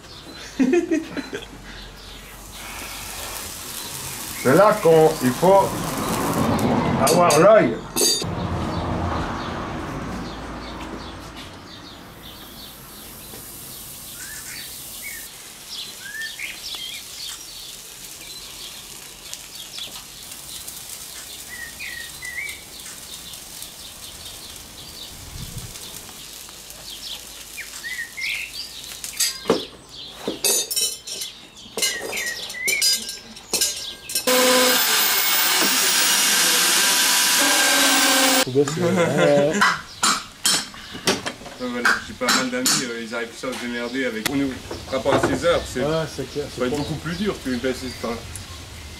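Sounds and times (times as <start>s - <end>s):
small birds chirping: 0.0s - 6.2s, 10.2s - 36.2s, 39.8s - 40.1s, 40.7s - 48.9s
hot horseshoe hissing on hoof: 1.9s - 6.6s, 12.1s - 29.2s, 34.3s - 38.5s
metal tools clinking on horseshoe: 7.1s - 8.2s, 29.2s - 29.5s, 30.4s - 34.3s.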